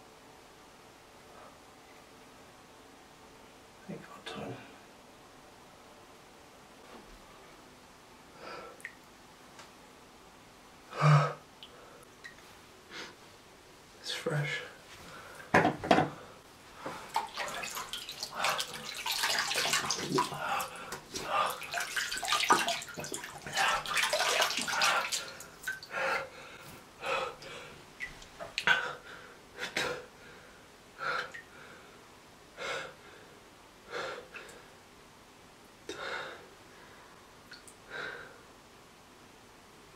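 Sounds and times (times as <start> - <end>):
liquid splattering: 17.1 - 25.8
man retching and vomiting: 19.6 - 21.8
heavy ragged breaths: 24.7 - 27.8.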